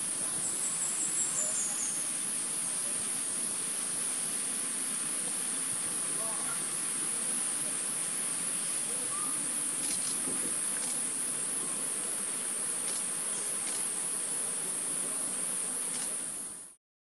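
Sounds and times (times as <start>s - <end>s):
insects droning: 0.0s - 16.8s
faint ticks: 9.8s - 11.0s, 12.8s - 13.9s, 15.9s - 16.2s.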